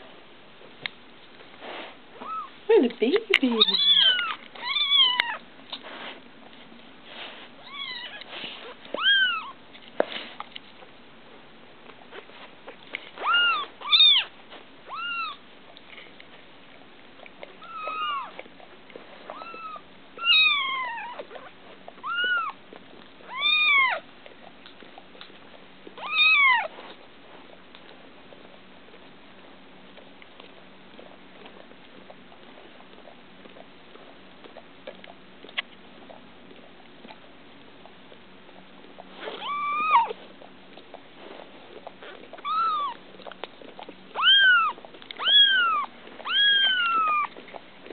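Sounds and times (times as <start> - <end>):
kittens mewing: 3.6 - 5.4, 7.6 - 9.6, 17.6 - 18.4, 19.3 - 21.4, 22.0 - 22.6, 39.2 - 40.2, 42.4 - 43.0, 44.1 - 47.4.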